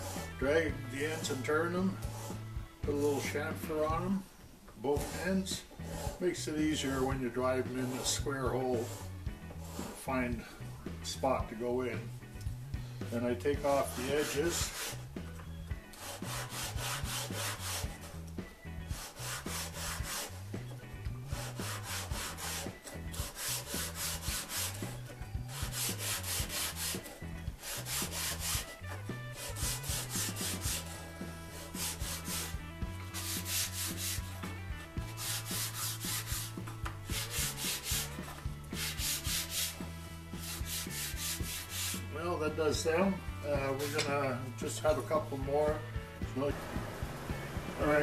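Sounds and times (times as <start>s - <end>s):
sandpaper scratching on wood: 0.0s - 0.4s, 1.0s - 2.4s, 5.0s - 10.2s, 13.4s - 15.1s, 15.9s - 42.2s, 43.6s - 44.2s
low background tune: 0.0s - 48.0s.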